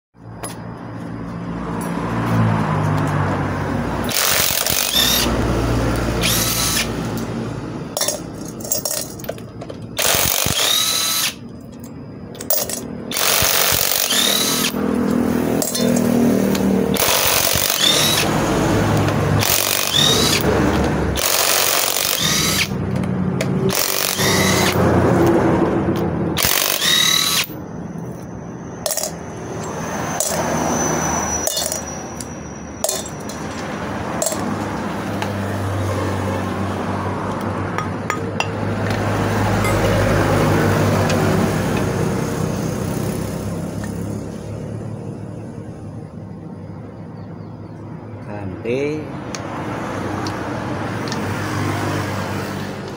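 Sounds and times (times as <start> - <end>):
impact wrench hammering bolts: 4.1 - 5.3, 8.0 - 11.8, 12.4 - 18.3, 18.9 - 27.6, 28.8 - 30.4, 31.4 - 35.4, 37.3 - 40.0.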